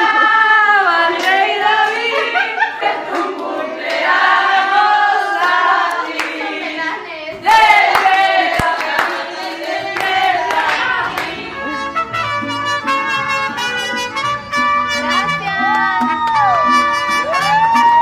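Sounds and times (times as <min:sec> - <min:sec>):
group of voices singing: 0:00.0 - 0:12.1
sharp claps: 0:07.9 - 0:09.2.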